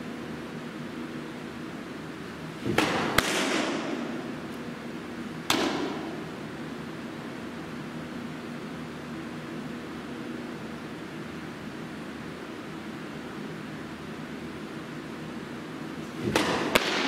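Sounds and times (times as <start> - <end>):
ball smacking into a mitt: 2.6 - 4.6, 5.5 - 6.2, 16.2 - 17.0.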